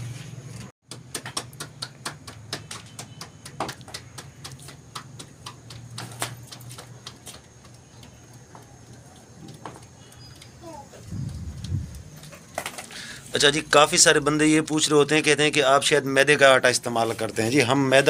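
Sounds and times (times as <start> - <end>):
hands patting dough: 0.8 - 10.4.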